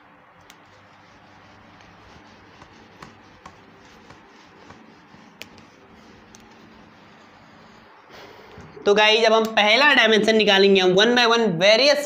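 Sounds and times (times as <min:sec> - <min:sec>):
duster rubbing a whiteboard: 0:00.4 - 0:08.8
light taps and clicks: 0:01.8 - 0:06.6.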